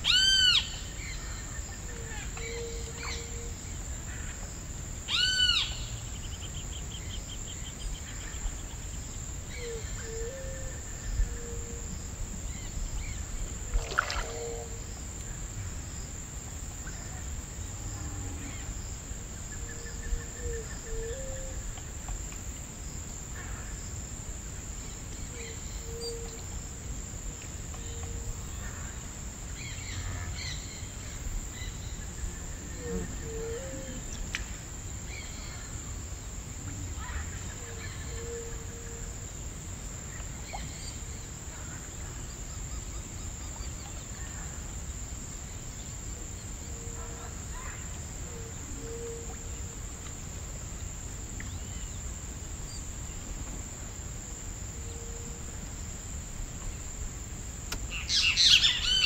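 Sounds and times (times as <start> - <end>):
insect chorus drone: 0.0 - 59.0
bird calls: 57.9 - 59.0.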